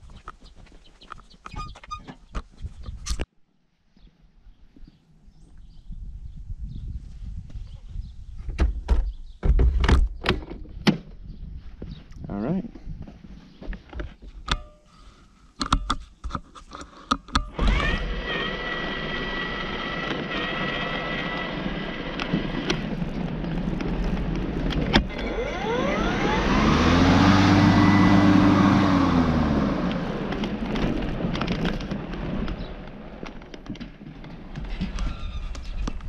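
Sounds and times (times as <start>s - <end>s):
vehicle engine running: 17.7s - 33.3s.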